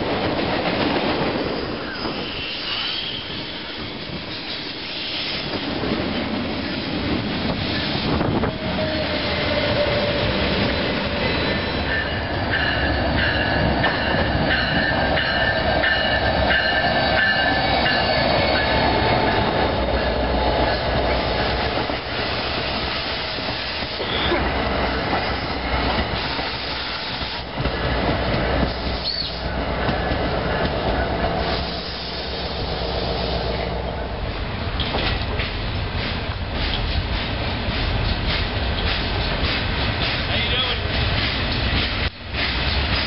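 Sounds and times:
train wheel and rail rumble: 0.0 - 43.0
high wheel squeal: 1.4 - 3.8.

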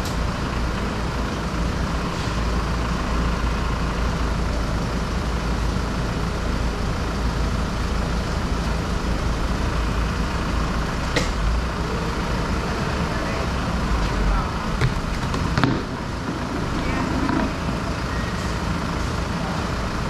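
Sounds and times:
truck engine idling: 0.0 - 20.0.

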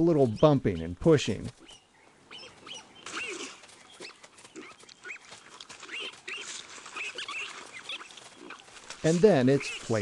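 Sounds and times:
piglets squeaking and squealing: 1.6 - 10.0
piglets lower calls: 2.3 - 8.7.

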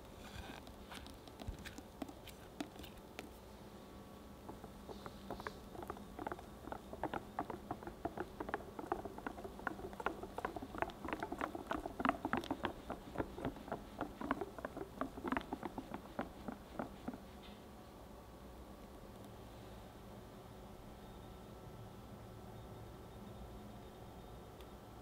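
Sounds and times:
whisk beating batter in glass bowl: 0.6 - 3.4, 4.4 - 17.4.

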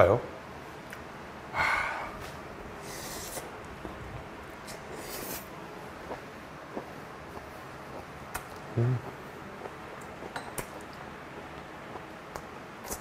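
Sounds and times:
short hissing sounds: 1.8 - 3.5, 4.6 - 5.6
person chewing: 4.6 - 13.0.

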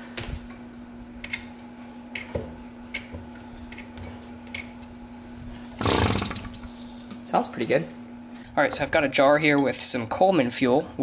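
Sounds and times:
engine spinning over on compression: 5.8 - 6.7.

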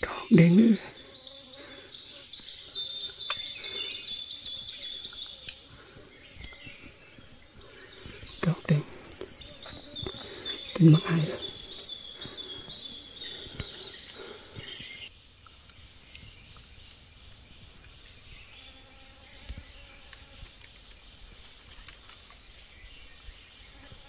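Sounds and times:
faint bird calls: 0.0 - 17.0
insect calls: 0.0 - 24.0
faint small clicks: 3.2 - 3.5, 5.1 - 6.6, 15.4 - 18.6, 21.4 - 22.4.

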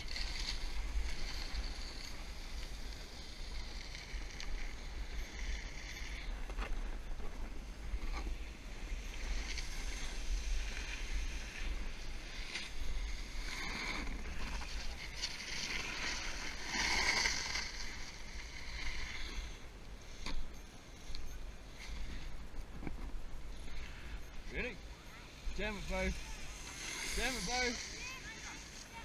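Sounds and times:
snowboard scraping on snow: 9.2 - 19.4, 25.6 - 29.0.

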